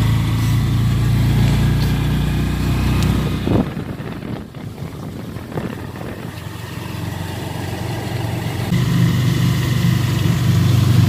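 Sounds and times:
small vehicle engine running: 0.0s - 11.0s.

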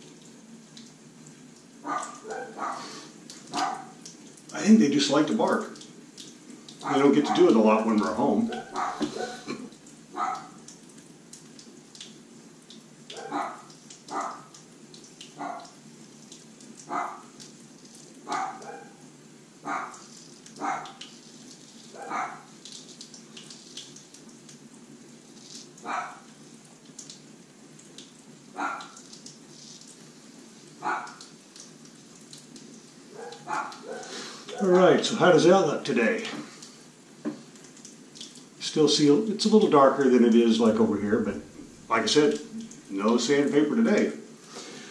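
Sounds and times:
dogs barking: 1.8s - 4.0s, 6.8s - 9.5s, 10.1s - 10.6s, 13.1s - 14.5s, 15.4s - 15.8s, 16.8s - 17.4s, 18.2s - 21.0s, 21.9s - 22.5s, 25.8s - 26.3s, 28.6s - 29.0s, 30.8s - 31.3s, 33.1s - 34.8s.

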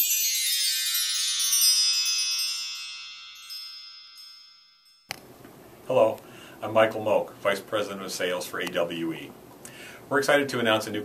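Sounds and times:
shimmering chime cascade: 0.0s - 5.1s.

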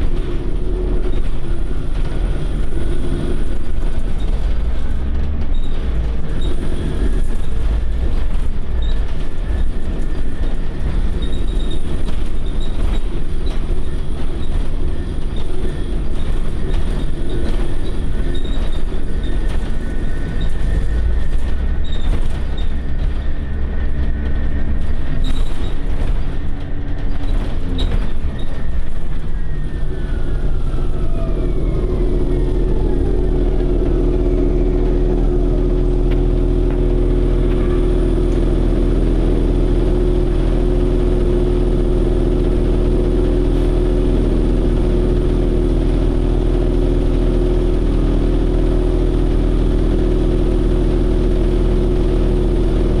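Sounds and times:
bus road and drivetrain rumble: 0.0s - 53.0s
engine idling with low hum: 0.0s - 53.0s
high whine: 0.0s - 53.0s.

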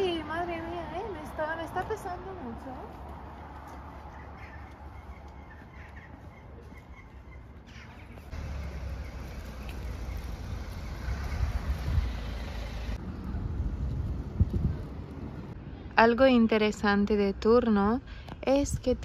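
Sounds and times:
faint bird calls: 4.0s - 8.3s
wind rumbling on microphone: 9.6s - 16.0s.

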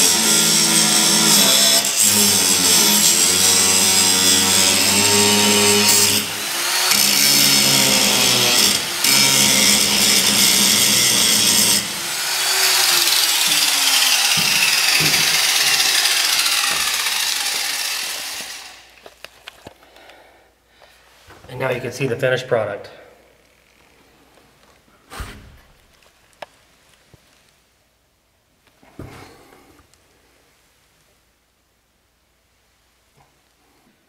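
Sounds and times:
electric grinder grinding metal: 0.0s - 19.0s.

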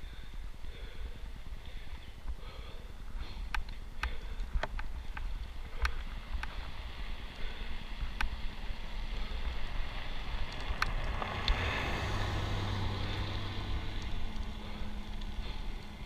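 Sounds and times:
bicycle tyres on gravel: 0.0s - 16.0s
car engine hum passing: 6.7s - 16.0s.

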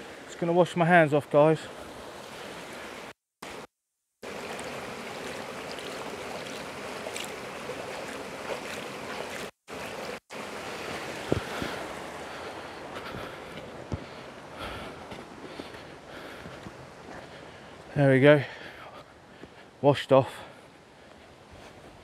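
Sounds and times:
shallow river water running: 0.0s - 22.0s
hands washing in water: 4.3s - 10.1s.

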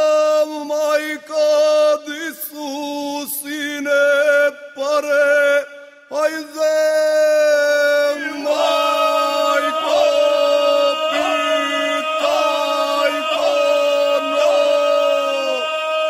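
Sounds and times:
men singing polyphonic folk song: 7.6s - 16.0s.

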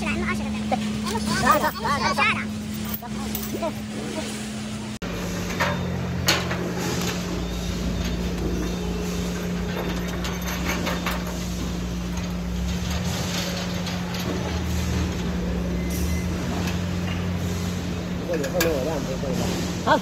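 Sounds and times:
metal beams being handled: 5.1s - 19.8s.

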